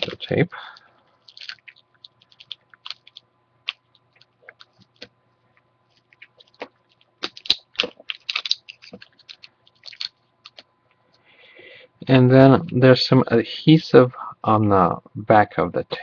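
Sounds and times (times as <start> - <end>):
tape peeling crackles and clicks: 1.2 - 10.7.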